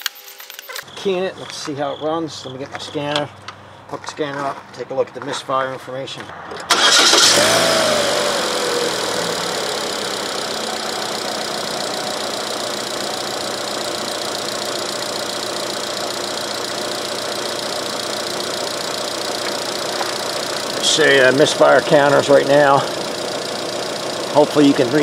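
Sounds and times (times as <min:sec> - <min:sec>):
car engine idling: 0:06.7 - 0:25.0.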